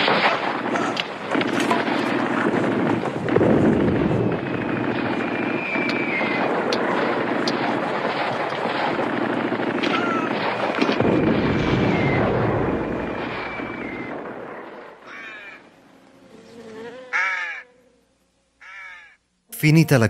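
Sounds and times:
explosions rumbling: 0:00.0 - 0:15.0
gunshots: 0:00.0 - 0:15.1
falling whistles: 0:04.6 - 0:06.4, 0:11.0 - 0:12.5, 0:13.1 - 0:14.2
crow cawing: 0:15.0 - 0:15.6, 0:17.1 - 0:17.7, 0:18.6 - 0:19.2.

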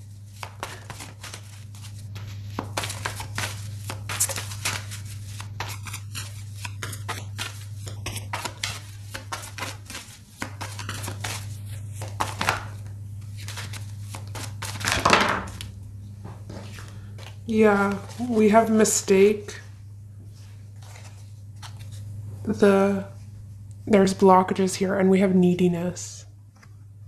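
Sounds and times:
steady low hum: 0:00.0 - 0:27.0
cards being shuffled: 0:00.1 - 0:15.7, 0:16.5 - 0:18.5, 0:20.8 - 0:22.1.

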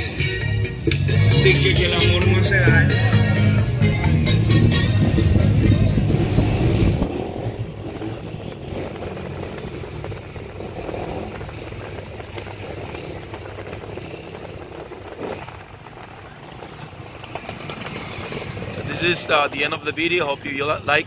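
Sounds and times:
loud music with heavy beat: 0:00.0 - 0:07.0
car road and engine noise: 0:00.0 - 0:21.0.

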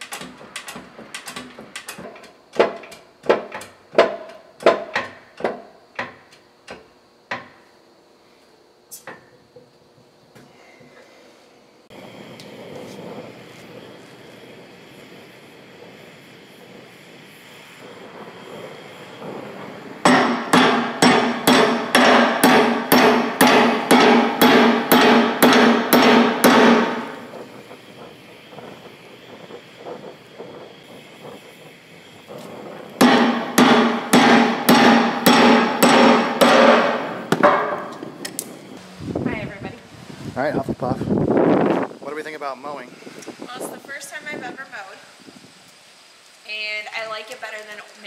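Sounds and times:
torch hissing: 0:11.0 - 0:48.0
hammer blows ringing on steel: 0:20.0 - 0:27.3, 0:33.0 - 0:38.0.

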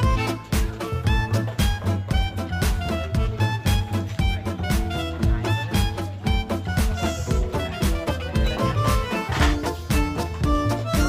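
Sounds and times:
upbeat instrumental music: 0:00.0 - 0:11.0.

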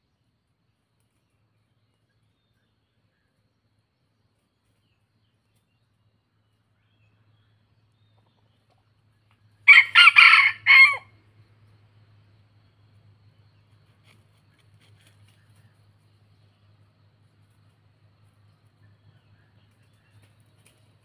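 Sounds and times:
rooster crowing: 0:09.6 - 0:11.2.

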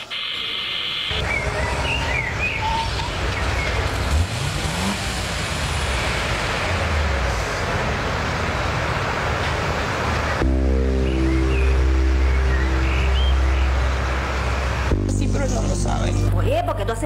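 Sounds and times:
car engine running: 0:01.2 - 0:16.9
road hiss: 0:02.8 - 0:16.3.

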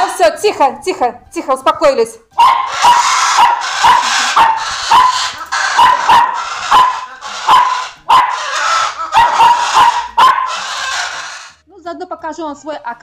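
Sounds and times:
puppy yapping: 0:02.4 - 0:11.6.

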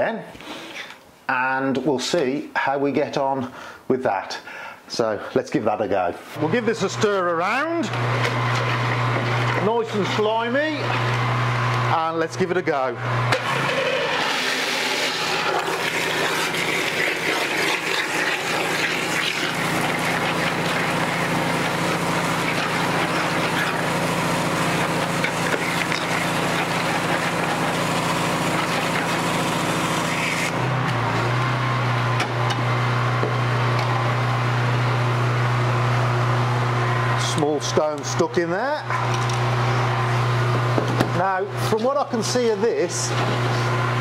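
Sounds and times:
pressure washer hum: 0:06.4 - 0:44.0
rushing hiss of sucked slurry: 0:13.8 - 0:30.6.

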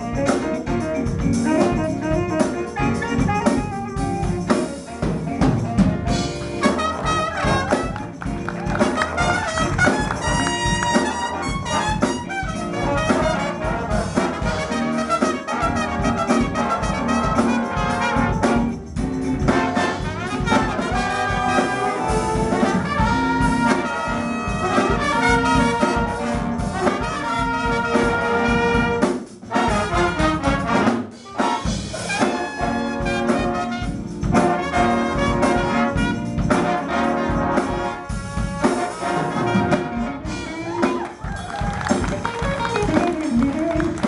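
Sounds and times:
saxophone section: 0:00.0 - 0:04.8, 0:06.4 - 0:18.8, 0:19.5 - 0:44.0
trumpets and trombones: 0:00.0 - 0:05.1, 0:06.1 - 0:44.0
drums: 0:00.0 - 0:44.0
electric guitar: 0:39.4 - 0:44.0.

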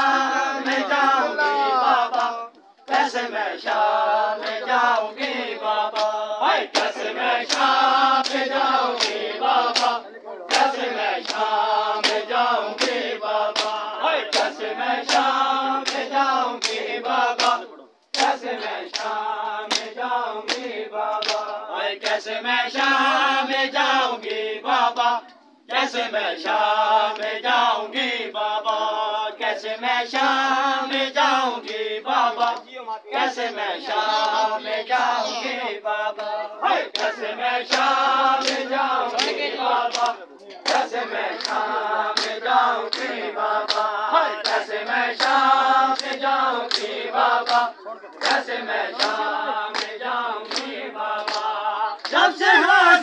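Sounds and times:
men chanting a lament: 0:00.0 - 0:53.0
hands slapping chests: 0:05.9 - 0:22.2, 0:36.2 - 0:52.2.

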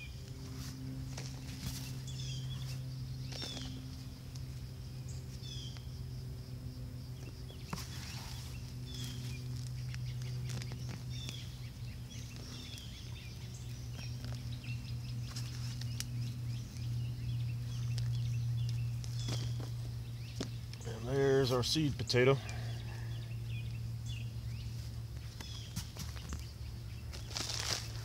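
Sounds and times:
hand raking soil: 0:00.0 - 0:04.5, 0:07.2 - 0:17.0, 0:24.6 - 0:28.0
steady low hum: 0:00.0 - 0:28.0.

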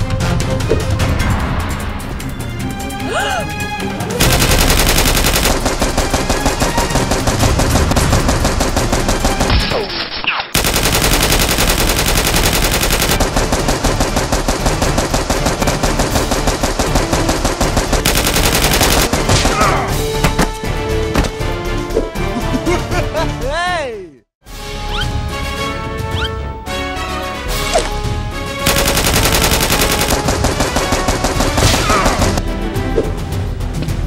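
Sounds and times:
machine-gun fire: 0:04.2 - 0:09.7, 0:10.6 - 0:19.8, 0:28.6 - 0:32.4.

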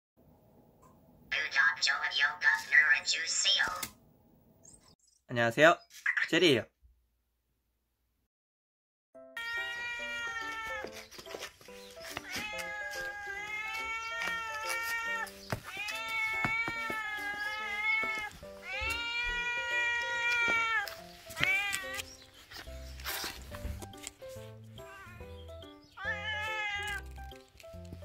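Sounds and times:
light background melody: 0:09.2 - 0:28.0
cat meowing: 0:09.4 - 0:11.1, 0:12.2 - 0:22.2, 0:24.7 - 0:27.2.

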